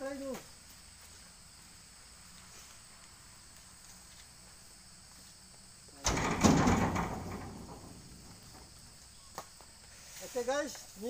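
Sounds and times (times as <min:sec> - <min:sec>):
loud rattling clatter: 0:06.0 - 0:08.8.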